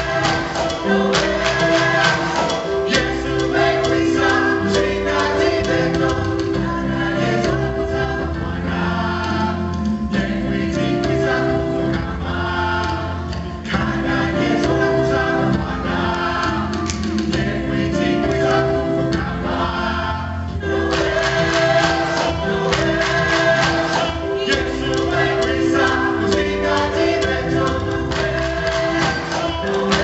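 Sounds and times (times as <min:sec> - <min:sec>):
hand drums beating: 0:00.0 - 0:07.8, 0:20.7 - 0:30.0
choir singing in harmony: 0:00.0 - 0:30.0.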